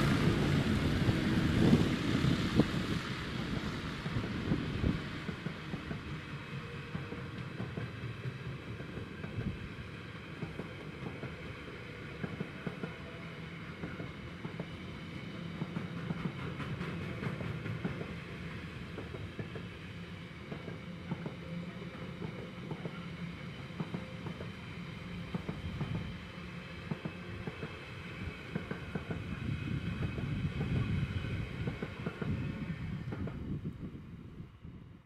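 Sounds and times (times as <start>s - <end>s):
train wagons rolling past: 0.0s - 34.0s.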